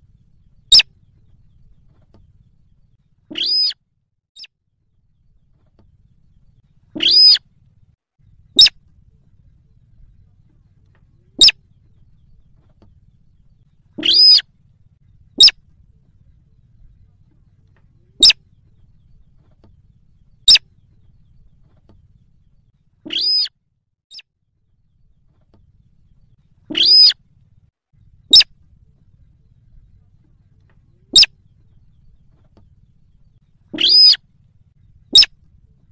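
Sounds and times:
rail bird calling: 0.0s - 1.4s, 3.3s - 3.8s, 6.9s - 7.5s, 8.5s - 8.8s, 11.2s - 12.4s, 13.9s - 14.5s, 15.3s - 15.6s, 18.0s - 19.2s, 20.2s - 21.4s, 23.1s - 23.5s, 26.6s - 27.2s, 28.3s - 28.5s, 30.9s - 32.3s, 33.1s - 34.3s, 34.9s - 35.4s.

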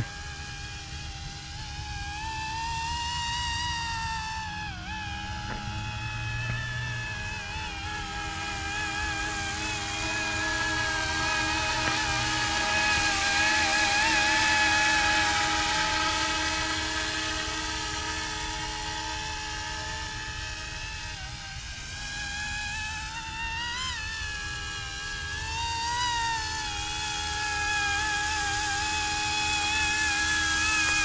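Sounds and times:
rotors rushing: 0.0s - 24.2s
model helicopter motor whine: 0.0s - 31.0s.

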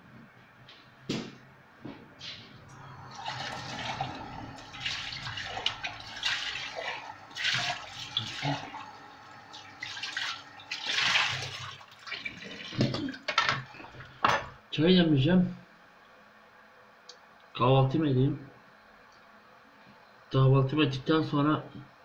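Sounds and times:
water running and splashing: 2.7s - 14.1s.

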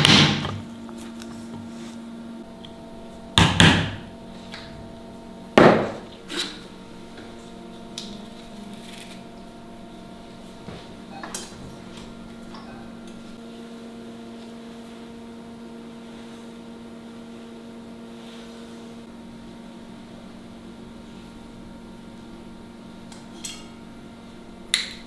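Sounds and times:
electrical hum: 0.0s - 25.0s.

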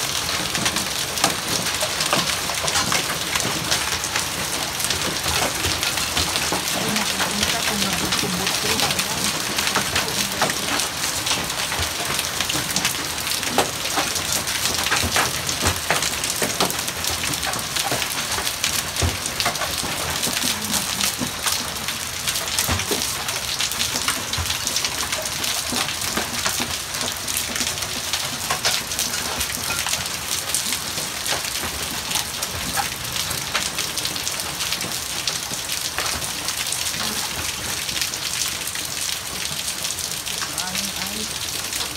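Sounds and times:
hailstones falling on paving: 0.0s - 41.9s.

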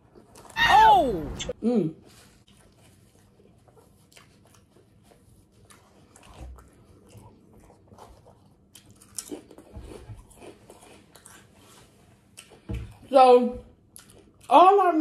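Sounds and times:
chewing: 2.2s - 13.1s, 13.8s - 14.5s.

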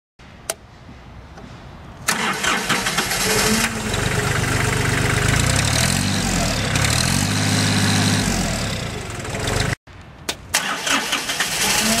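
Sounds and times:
diesel engine idling: 2.1s - 9.8s.

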